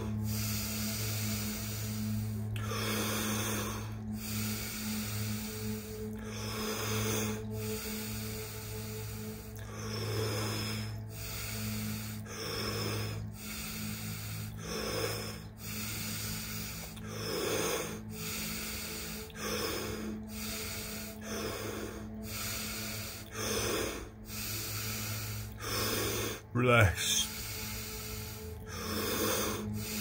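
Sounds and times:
deep breathing through mouth: 0.0 - 30.0.

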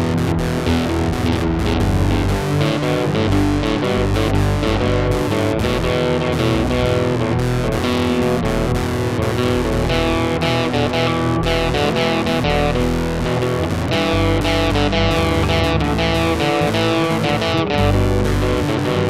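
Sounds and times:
guitar music over bass: 0.0 - 19.0.

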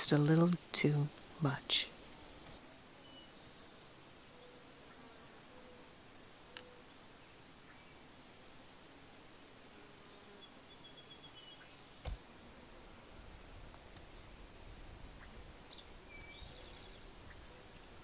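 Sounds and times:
bird chirps: 15.2 - 17.6.

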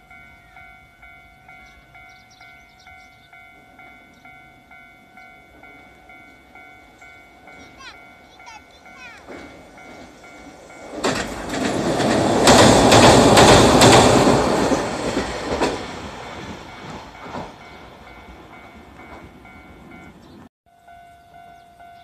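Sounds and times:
faint level-crossing bell: 0.0 - 11.2, 16.3 - 22.0
tram passing: 0.0 - 22.0
wheel clacks over rail joints: 9.2 - 17.6.

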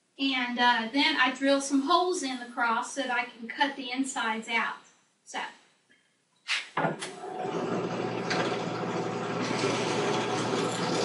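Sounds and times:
drill press motor humming: 7.2 - 11.0.

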